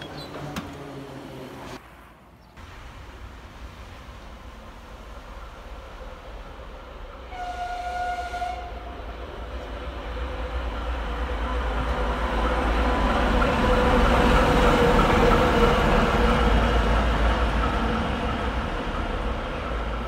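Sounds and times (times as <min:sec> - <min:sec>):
diesel locomotive engine: 0:00.0 - 0:20.0
locomotive horn blast: 0:07.3 - 0:09.0.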